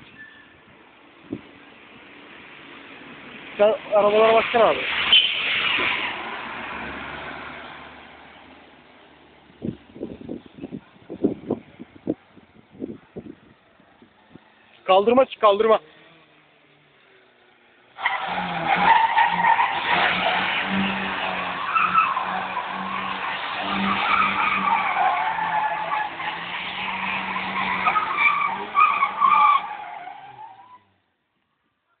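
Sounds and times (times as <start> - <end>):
car tyres squealing: 0.0 - 0.6, 3.4 - 8.6, 18.0 - 31.0.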